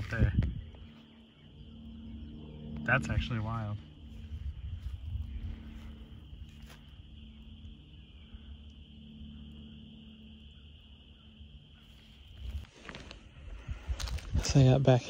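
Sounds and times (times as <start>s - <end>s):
wind rumble on microphone: 0.0s - 8.7s, 12.2s - 15.0s.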